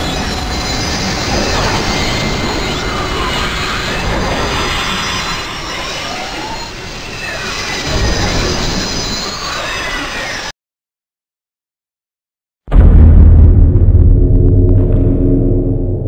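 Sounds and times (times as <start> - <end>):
shrill gliding screeching tones: 0.0 - 10.5
low rumble: 12.7 - 16.0.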